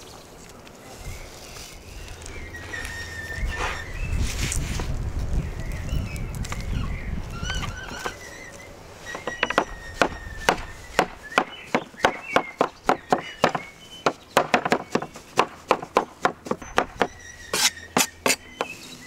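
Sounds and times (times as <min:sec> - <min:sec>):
cleaver chopping on wooden board: 0:09.2 - 0:18.8.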